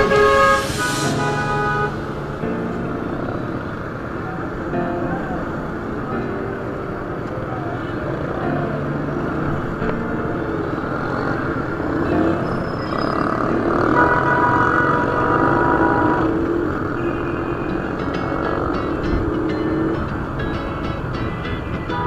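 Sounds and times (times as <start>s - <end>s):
vehicle horn: 0.0s - 2.0s, 12.9s - 18.0s
traffic noise: 0.0s - 22.0s
motorcycle engine: 10.9s - 20.4s.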